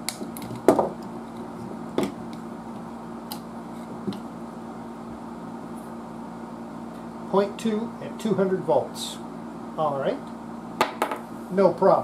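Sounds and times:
low equipment hum: 0:00.0 - 0:12.0.

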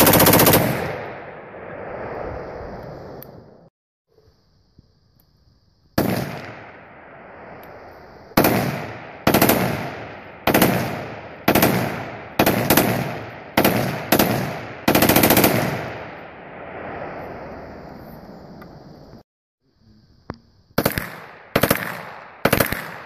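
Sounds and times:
rifle firing with echo: 0:00.0 - 0:01.3, 0:06.0 - 0:06.9, 0:08.4 - 0:16.2, 0:20.8 - 0:23.0.

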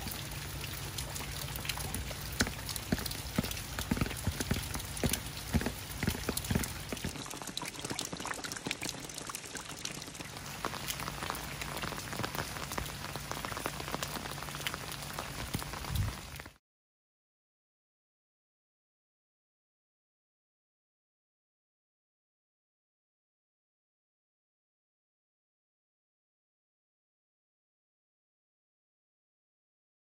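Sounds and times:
heavy rain falling: 0:00.0 - 0:16.6
raindrops splashing: 0:00.0 - 0:16.6.

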